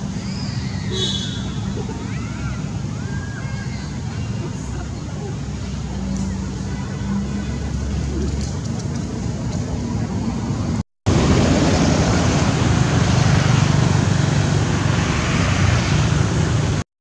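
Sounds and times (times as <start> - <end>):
loud rumbling background noise: 0.0 - 16.8.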